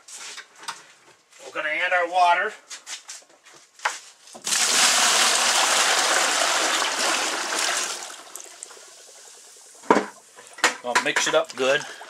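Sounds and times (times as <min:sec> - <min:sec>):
water pouring into plastic tub: 0:04.4 - 0:10.6, 0:11.2 - 0:12.0.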